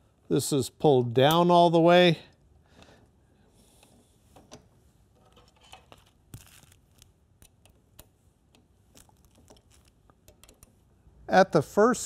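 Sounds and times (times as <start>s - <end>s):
small metal clicks and ticks: 5.3s - 10.8s.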